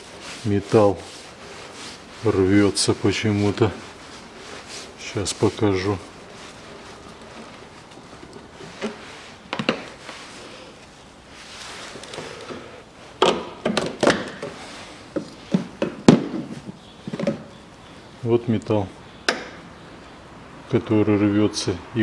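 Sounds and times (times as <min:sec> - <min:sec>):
plastic air duct clunking: 0:07.1 - 0:10.1, 0:12.0 - 0:17.6.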